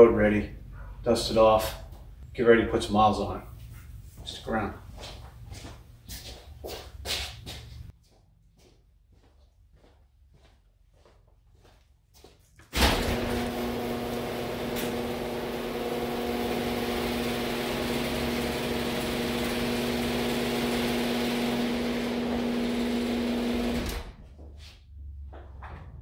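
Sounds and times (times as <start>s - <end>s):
garage door motor hum: 12.7s - 24.4s.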